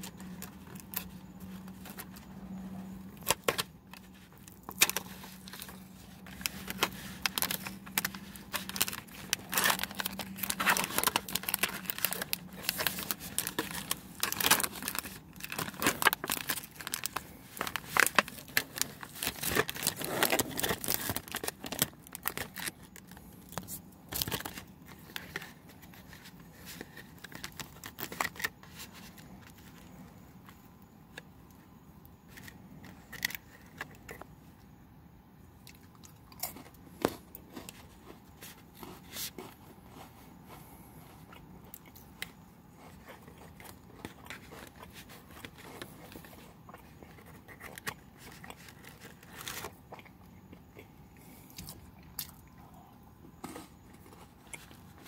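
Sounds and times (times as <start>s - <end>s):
plastic packaging crinkling and tearing: 0.0s - 31.2s, 42.1s - 50.1s.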